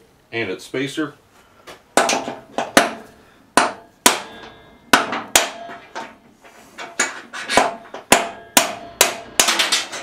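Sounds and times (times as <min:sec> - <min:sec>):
metal parts clanking: 0:09.4 - 0:10.0.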